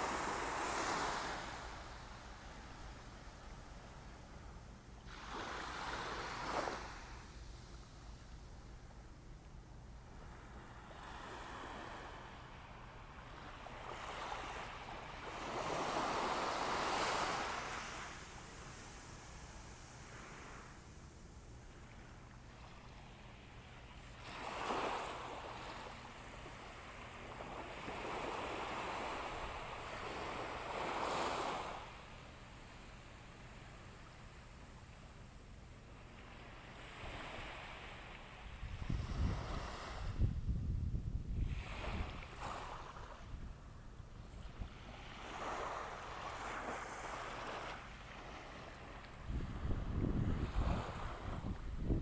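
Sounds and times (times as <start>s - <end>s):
small waves breaking on sand: 0.0s - 7.8s, 10.2s - 21.1s, 21.7s - 32.8s, 35.9s - 40.4s, 41.4s - 43.5s, 44.3s - 52.0s
wind rumble on microphone: 38.4s - 43.7s, 49.1s - 52.0s.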